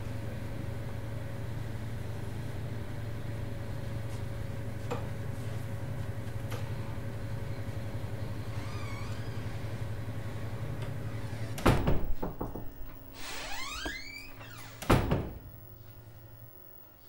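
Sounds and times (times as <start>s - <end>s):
low room hum: 0.0s - 17.0s
door squeaking: 8.4s - 9.8s, 11.1s - 15.5s
wooden door banging and rattling: 11.4s - 15.5s.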